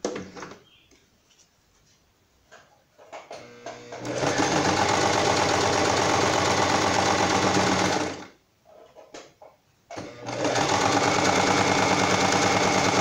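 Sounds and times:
sewing machine stitching: 0:03.3 - 0:08.3, 0:09.9 - 0:13.0.

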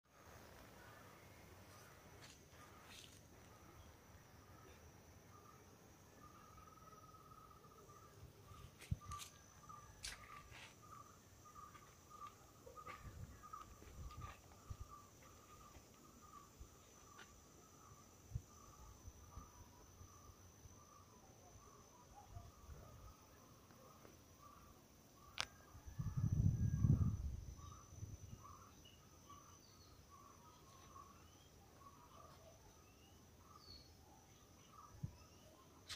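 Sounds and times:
insects chirring: 0:00.1 - 0:35.9.

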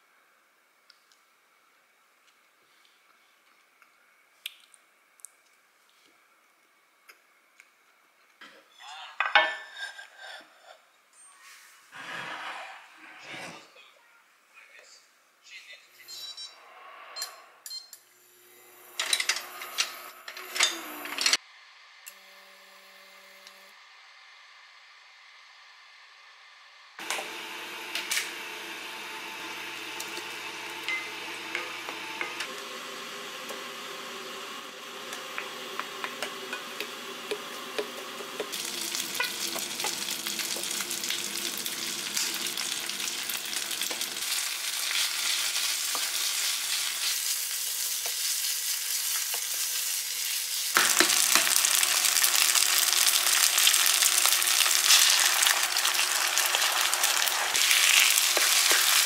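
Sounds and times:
wooden spatula scraping a pot: 0:09.6 - 0:10.8
rice sizzling in hot oil: 0:27.0 - 0:59.0.

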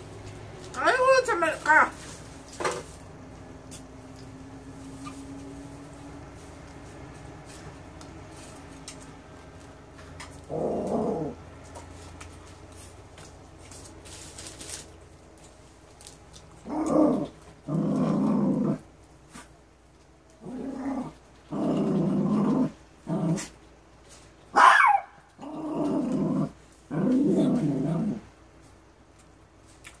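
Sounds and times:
dog growling and barking: 0:10.2 - 0:11.9, 0:16.6 - 0:19.5, 0:20.4 - 0:23.6, 0:24.5 - 0:28.4.

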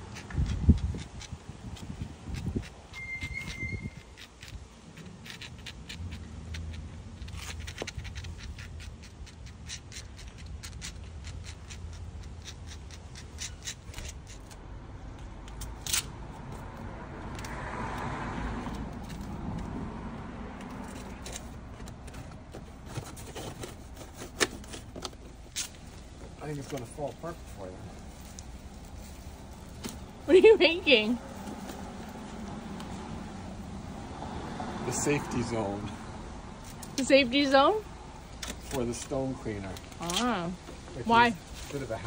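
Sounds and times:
spatula scraping stone paving: 0:00.0 - 0:14.6.

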